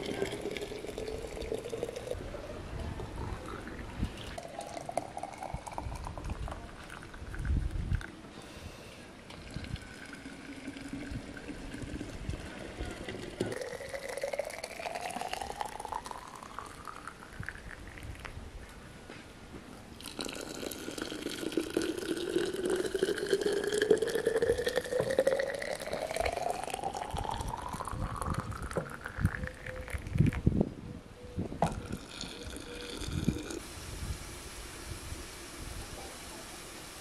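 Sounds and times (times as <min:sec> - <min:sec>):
water pouring into glass jars: 0:00.0 - 0:02.2, 0:03.3 - 0:08.1, 0:09.3 - 0:18.2, 0:20.0 - 0:30.4, 0:31.7 - 0:37.0.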